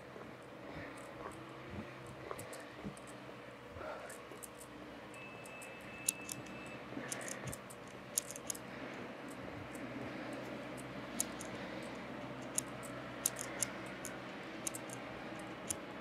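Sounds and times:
distant city traffic hum: 0.0s - 16.0s
sharp high clicks: 4.1s - 8.6s, 9.2s - 15.8s.

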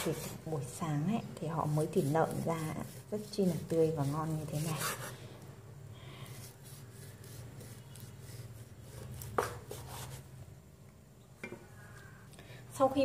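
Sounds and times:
knife slicing meat: 1.7s - 5.1s.

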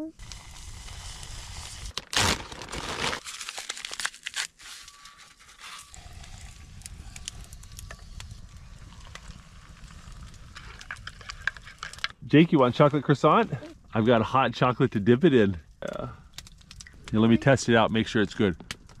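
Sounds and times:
campfire crackling: 0.1s - 19.0s
packet crinkling and tearing: 0.2s - 12.1s.

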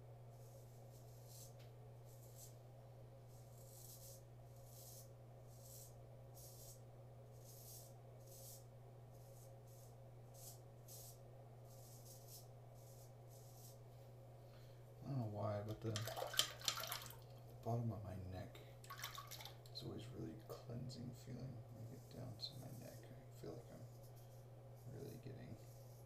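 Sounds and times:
steady low hum: 0.0s - 26.0s
razor scraping stubble: 24.8s - 26.0s.

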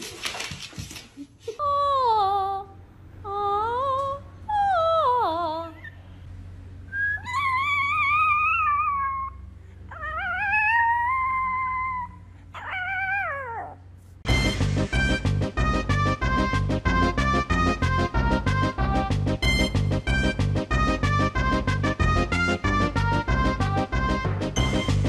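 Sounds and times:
faint low hum: 0.0s - 15.0s
small dog howling: 7.1s - 13.8s.

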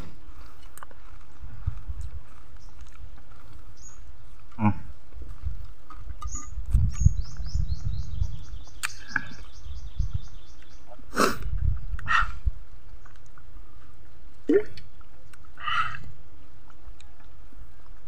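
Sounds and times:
man's mouth and breath noises: 0.0s - 6.0s, 8.8s - 9.6s, 11.1s - 12.6s.

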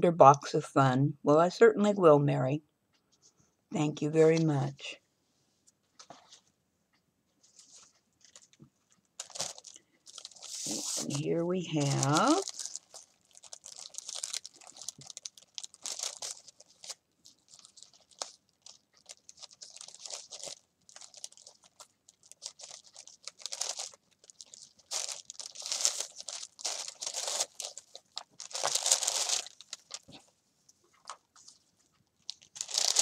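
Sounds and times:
paper bags crinkling: 9.2s - 30.2s, 32.2s - 33.0s.

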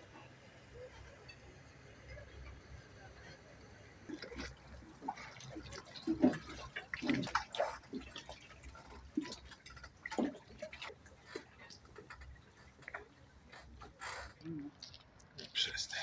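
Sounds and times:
water lapping against boat hulls: 3.9s - 16.0s
water drips: 4.1s - 16.0s.

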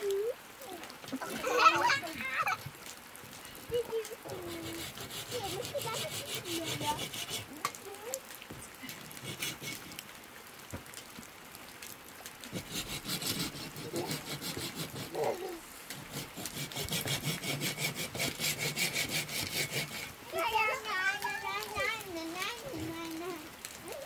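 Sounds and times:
rhythmic rasping strokes: 4.3s - 7.5s, 12.5s - 15.2s, 15.9s - 20.8s.

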